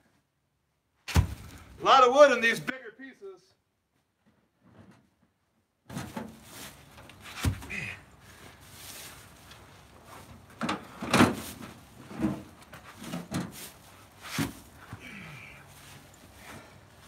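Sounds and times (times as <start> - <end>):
firewood rounds knocking and thudding: 1.1 - 1.8, 5.8 - 7.9, 10.4 - 15.1.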